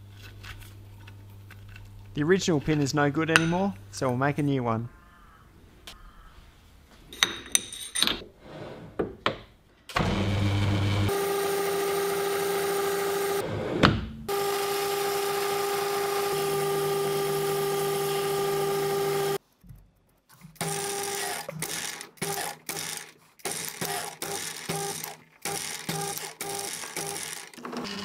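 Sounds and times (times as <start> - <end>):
metal lathe running: 10.0 - 13.4, 14.3 - 19.4, 20.6 - 28.0.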